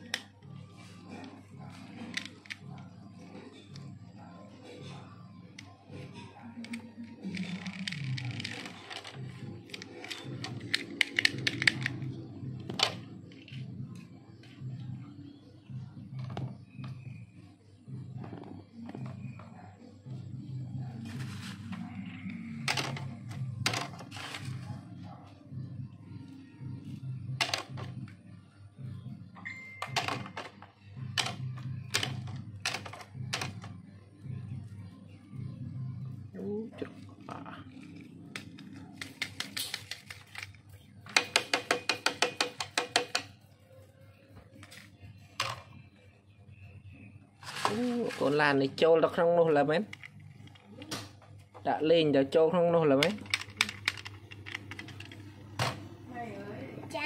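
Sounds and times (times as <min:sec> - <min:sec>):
plastic toy parts clicking: 0:06.6 - 0:12.1, 0:37.9 - 0:43.3, 0:53.0 - 0:55.2.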